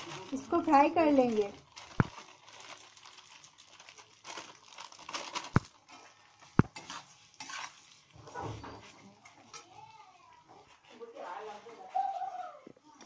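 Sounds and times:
food frying in oil: 0.0s - 11.4s
metal spatula scraping a wok: 5.8s - 9.8s.

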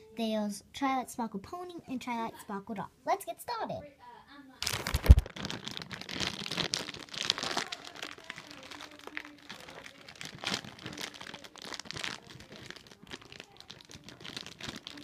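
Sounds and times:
plastic bag crinkling: 4.6s - 15.0s.

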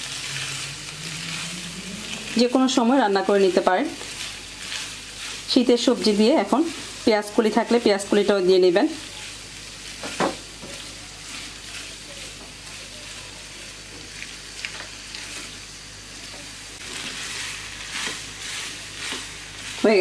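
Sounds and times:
food sizzling in a pan: 0.0s - 20.0s
spatula scraping and tapping: 10.0s - 12.7s, 16.9s - 19.3s.

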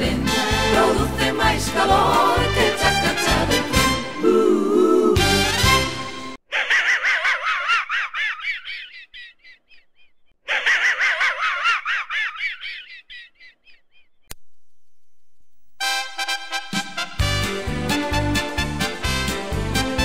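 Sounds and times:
wheezing snicker laugh: 6.5s - 9.6s, 10.5s - 13.6s
click: 14.3s - 14.5s.

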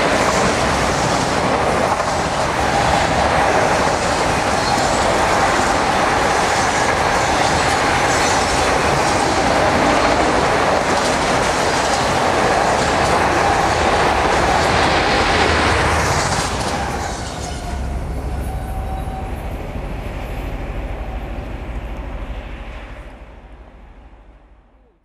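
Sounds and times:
freight train wheels clattering: 0.0s - 19.9s.

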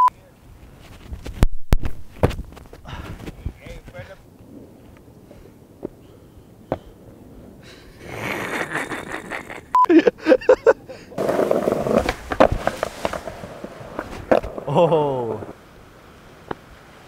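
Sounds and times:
skateboard wheels rolling on brick: 10.6s - 17.0s
skateboard clicks: 11.1s - 14.7s.

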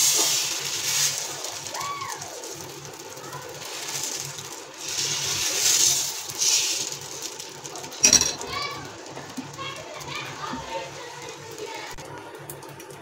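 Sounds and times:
ladle scraping batter on griddle: 3.6s - 8.2s.

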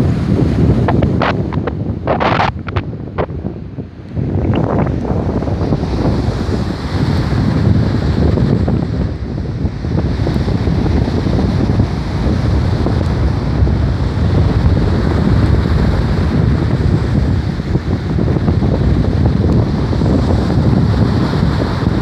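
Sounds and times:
breaking surf: 0.0s - 22.0s
wind buffeting microphone: 0.0s - 22.0s.

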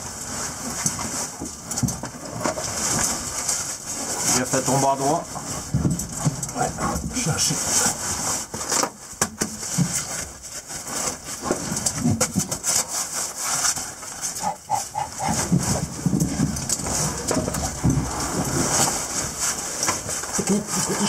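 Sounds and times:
clothing scraping against rock: 0.0s - 21.0s
heavy breathing: 14.4s - 19.4s.

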